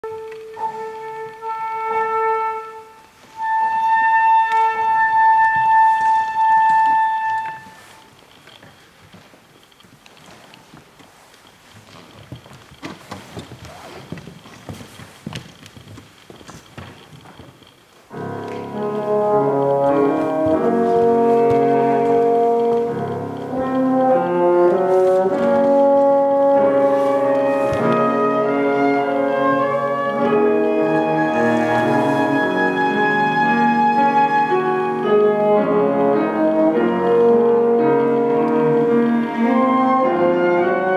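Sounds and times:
flutes playing slow melody: 0.0s - 8.1s, 18.4s - 40.9s
hall noise: 18.1s - 40.8s.

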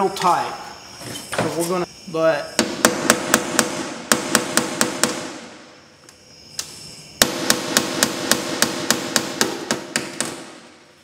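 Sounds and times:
hammer tapping metal: 7.2s - 10.6s.

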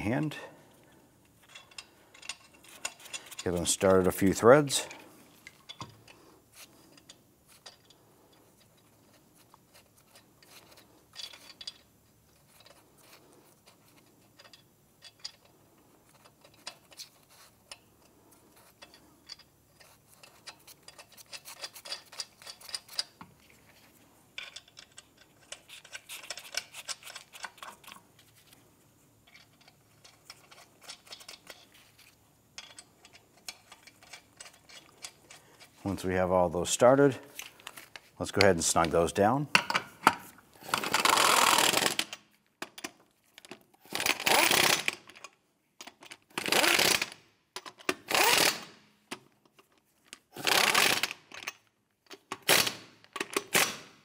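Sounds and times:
metal nuts clicking and clinking: 1.2s - 28.6s, 29.2s - 36.0s, 37.1s - 53.7s.

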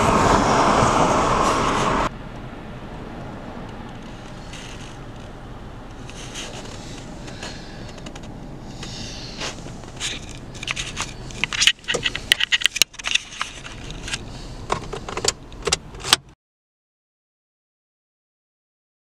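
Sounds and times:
car engine idling hum: 0.0s - 16.2s
clicks scrapes and rustles handling: 3.9s - 16.2s.

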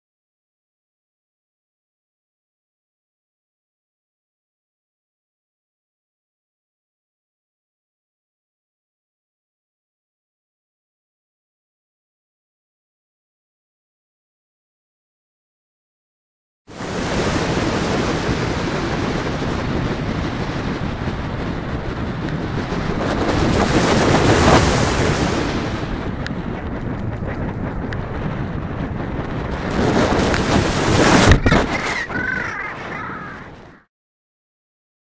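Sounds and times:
wind rushing over microphone: 16.7s - 33.9s
crow cawing: 31.4s - 33.8s.

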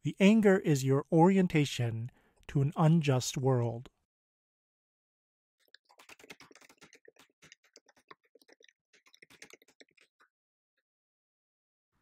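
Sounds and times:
faint keyboard typing: 5.8s - 10.3s.

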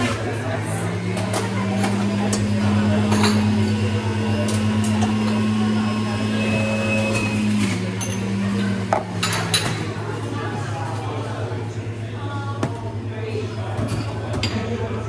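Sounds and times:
espresso machine hum: 0.0s - 11.5s
faint background voices: 0.0s - 15.0s.

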